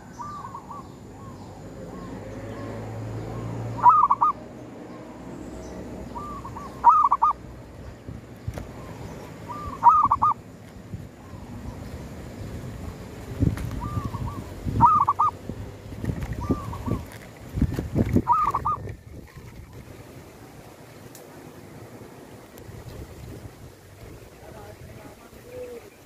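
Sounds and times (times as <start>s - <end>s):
dove cooing: 3.7s - 4.4s, 6.1s - 7.4s, 8.8s - 10.4s, 13.8s - 15.4s, 16.4s - 17.2s, 18.1s - 19.0s.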